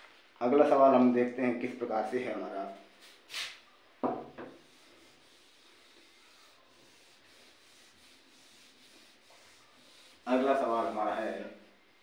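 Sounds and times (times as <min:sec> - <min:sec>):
duster scrubbing whiteboard: 0:04.4 - 0:11.4.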